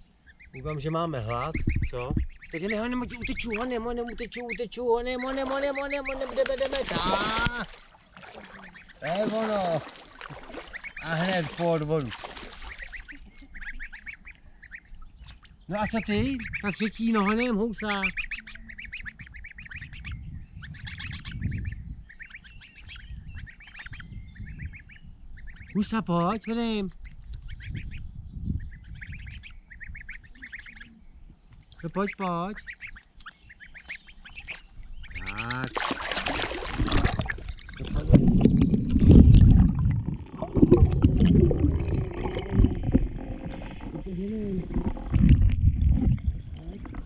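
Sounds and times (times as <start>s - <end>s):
goslings peeping: 0.0s - 39.4s
rumbling water: 5.0s - 13.9s, 34.6s - 47.0s
underwater sloshing and gurgling: 7.6s - 13.5s, 35.7s - 47.0s
low rumble: 37.1s - 47.0s.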